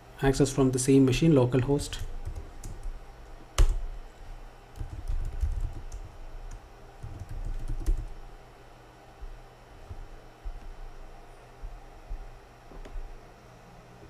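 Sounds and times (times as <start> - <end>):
typing on computer keyboard: 4.8 - 6.2, 7.0 - 8.2.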